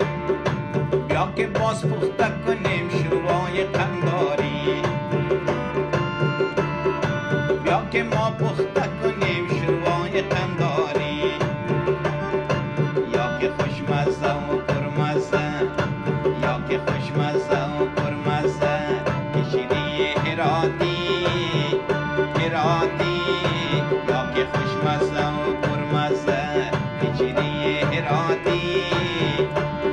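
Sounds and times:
song with tabla drumming: 0.0 - 29.9.

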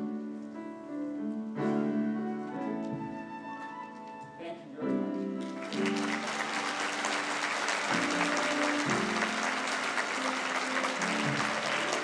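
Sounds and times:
held musical notes: 0.0 - 12.0
audience applauding: 5.4 - 12.0.

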